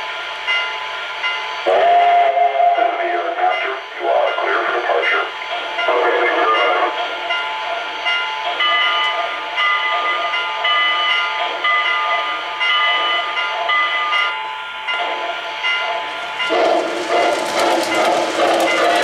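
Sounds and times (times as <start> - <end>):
steam hiss: 15.0 - 19.0.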